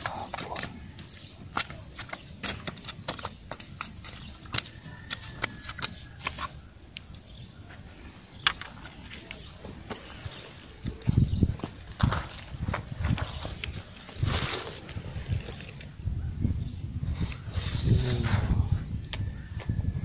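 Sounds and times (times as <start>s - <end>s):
fish slapping on asphalt: 0.0s - 6.5s.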